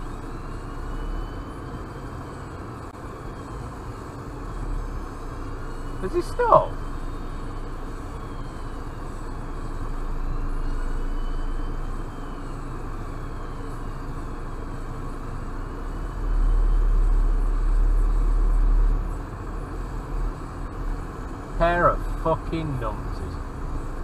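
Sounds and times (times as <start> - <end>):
car idling cabin rumble: 0.0 - 24.0
distant emergency siren: 0.0 - 24.0.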